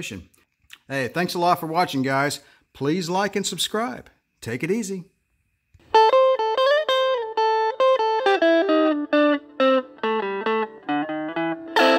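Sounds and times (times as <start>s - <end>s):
guitar melody: 5.8s - 11.9s.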